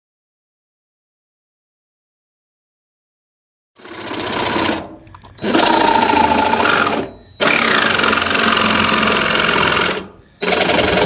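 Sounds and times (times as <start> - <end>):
power tool buzzing: 3.8 - 11.0.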